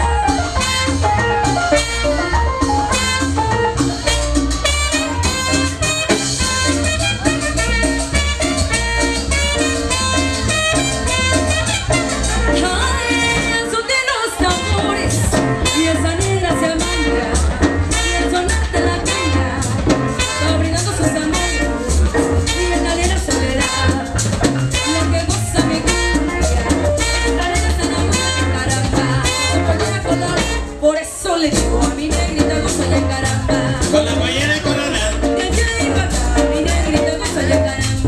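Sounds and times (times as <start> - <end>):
live band playing dance music: 0.0 - 38.0
shaken percussion: 0.0 - 38.0
people singing: 12.2 - 38.0.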